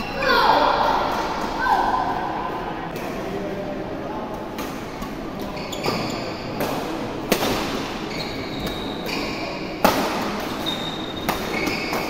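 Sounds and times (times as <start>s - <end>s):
shoes squeaking on court floor: 5.2s - 6.7s, 8.0s - 9.8s, 10.5s - 12.0s
racket hitting shuttlecock: 9.8s - 10.6s.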